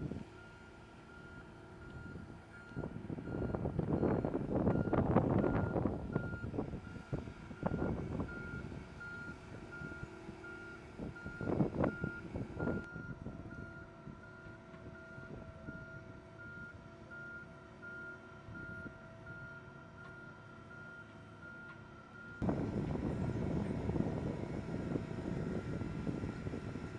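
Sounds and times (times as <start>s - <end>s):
low rumbling noise: 22.4s - 26.9s.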